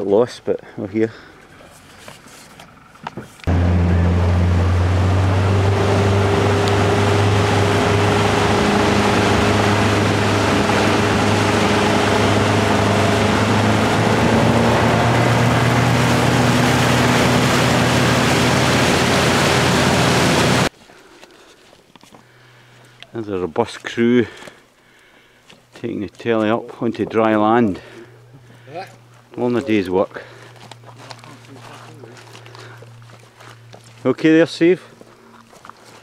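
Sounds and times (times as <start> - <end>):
wind: 0.0 - 36.0
motorboat engine running: 1.4 - 20.7, 27.8 - 34.1
water rushing: 3.5 - 20.7.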